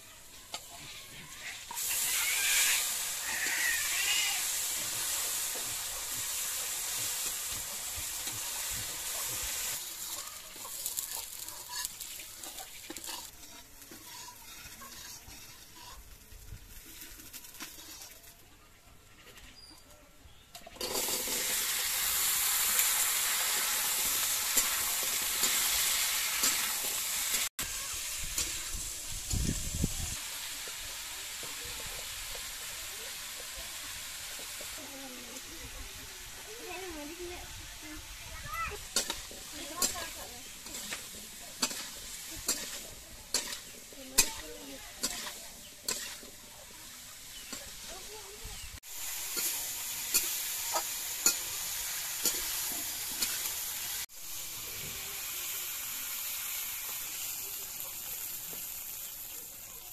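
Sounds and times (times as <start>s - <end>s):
food sizzling in a pan: 0.0s - 59.9s
spatula stirring: 0.5s - 18.5s, 38.8s - 48.2s.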